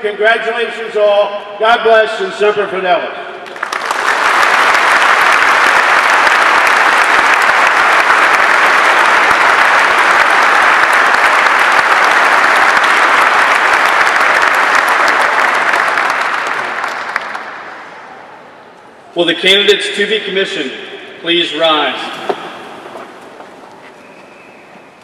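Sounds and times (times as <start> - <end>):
large audience clapping: 3.4 - 18.1, 22.0 - 25.0.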